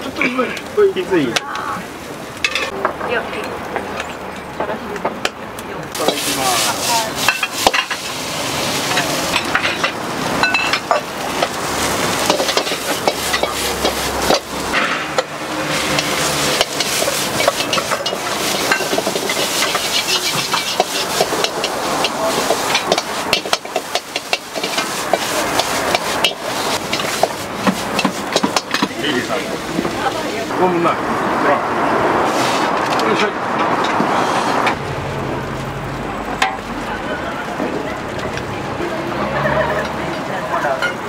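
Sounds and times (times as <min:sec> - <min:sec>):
gas flame: 0:05.0 - 0:34.8
food sizzling in a wok: 0:05.9 - 0:30.8, 0:32.0 - 0:32.8, 0:34.1 - 0:41.0
metal ladle scraping a wok: 0:06.0 - 0:30.2.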